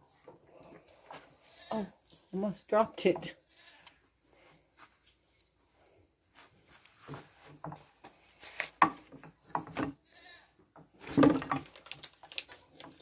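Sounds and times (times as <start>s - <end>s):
small knocks and rustles: 0.0s - 2.4s, 3.0s - 13.0s
young goat bleating: 10.1s - 10.5s.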